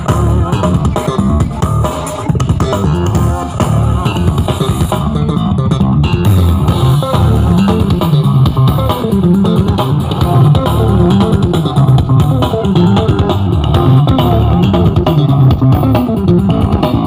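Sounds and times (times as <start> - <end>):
loud bass-heavy music on speakers: 0.0 - 17.0.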